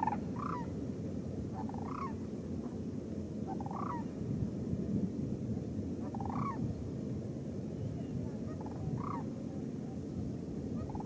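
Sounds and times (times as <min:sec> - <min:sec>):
cranes rattling calls: 0:00.0 - 0:00.7, 0:01.6 - 0:02.2, 0:03.5 - 0:04.1, 0:06.1 - 0:06.6, 0:08.5 - 0:09.3, 0:10.8 - 0:11.0.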